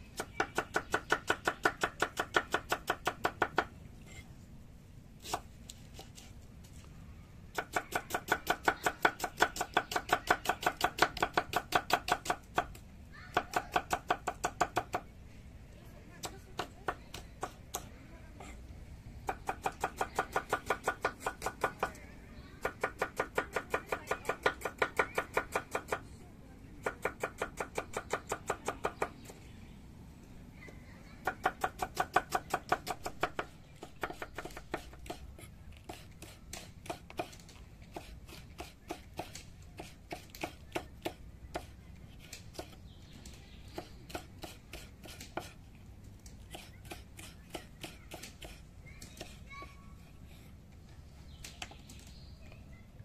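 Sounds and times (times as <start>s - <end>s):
knife chopping: 31.4s - 42.8s, 43.7s - 45.6s, 46.5s - 49.4s.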